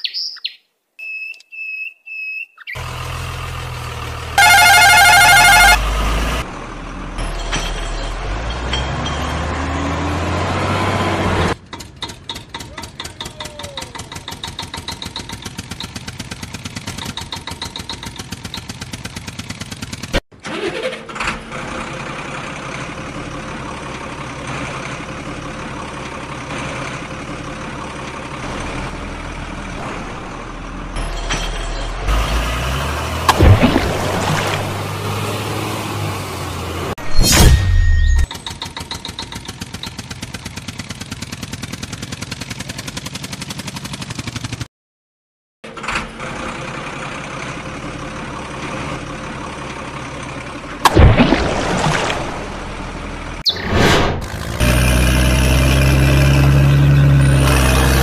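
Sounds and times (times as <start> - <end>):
engine running: 2.8 - 37.4, 38.2 - 44.7, 45.6 - 58.0
warbling horn-like tone: 4.4 - 5.8
fast even engine putter: 11.6 - 21.6, 38.3 - 44.6.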